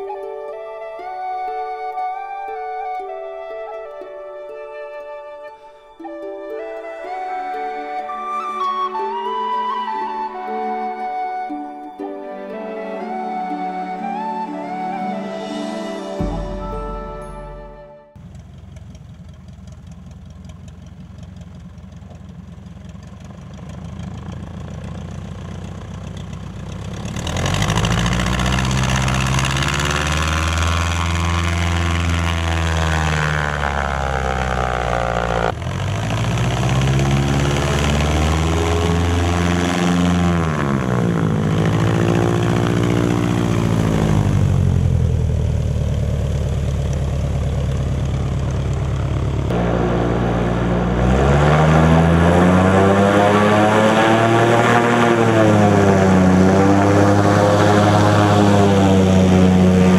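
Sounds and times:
propeller plane engine running: 17.7 - 59.9.

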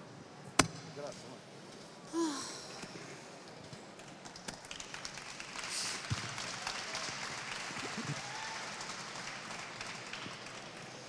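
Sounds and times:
audience applause: 4.1 - 11.0.

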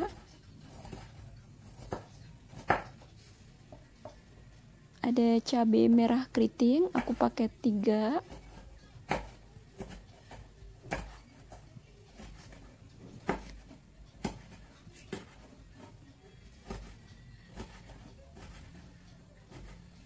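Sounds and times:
knife tapping on cutting board: 1.8 - 3.0, 7.0 - 7.2, 8.3 - 15.9, 16.6 - 18.8.

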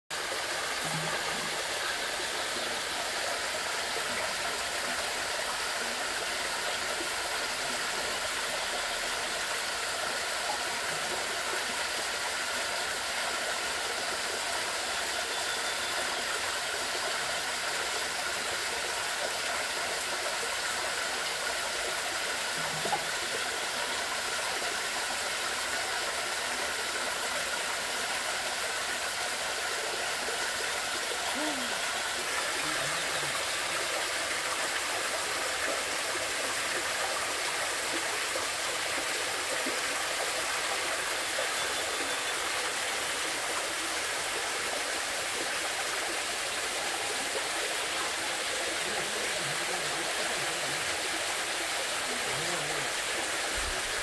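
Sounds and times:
stream rushing over rocks: 0.1 - 54.0.

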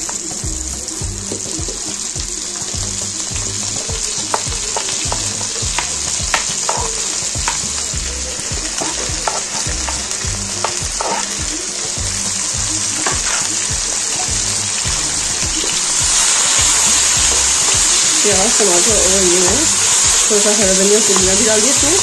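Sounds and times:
food sizzling in oil: 0.0 - 22.0
spoon knocking against pan: 3.9 - 11.7.

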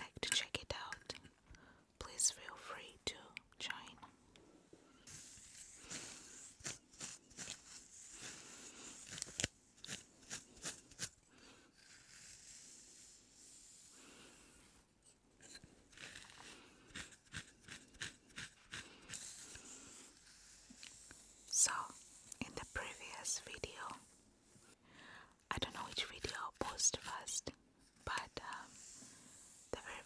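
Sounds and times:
comb scratching through hair: 5.1 - 13.7, 15.4 - 21.2.

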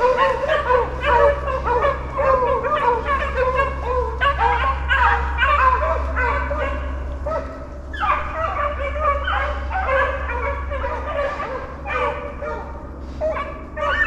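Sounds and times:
beagles baying: 0.0 - 14.0.

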